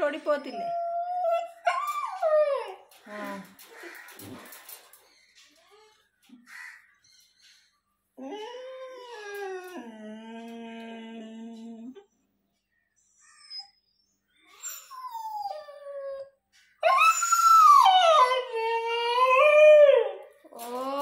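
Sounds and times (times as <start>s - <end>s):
puppy howling and whining: 0.3s - 3.0s, 8.2s - 12.1s, 13.1s - 21.0s.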